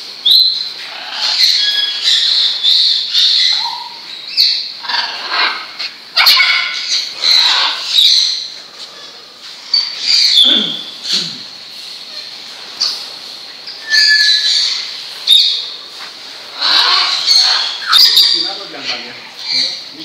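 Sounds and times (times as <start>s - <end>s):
macaws squawking: 0.8s - 9.1s, 9.8s - 11.3s, 13.8s - 20.0s.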